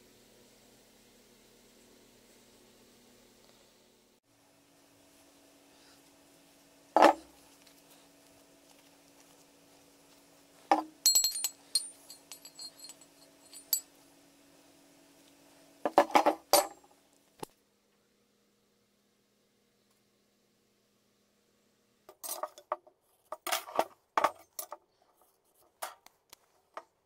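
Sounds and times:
metal axe heads clinking: 10.7s - 13.8s.

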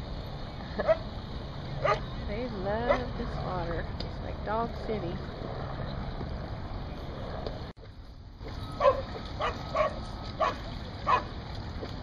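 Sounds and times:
dog barking: 1.8s - 2.1s, 8.8s - 11.3s.

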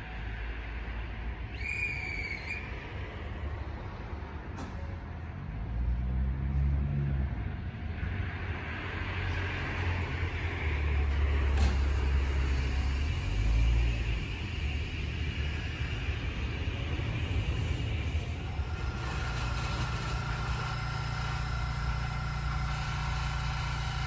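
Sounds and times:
train wheels rumbling: 7.8s - 24.0s
traction motor whine: 8.0s - 24.0s.

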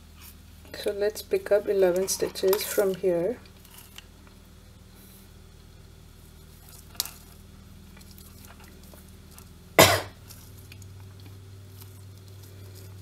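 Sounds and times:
low steady hum: 0.0s - 13.0s
person coughing: 9.8s - 10.2s.

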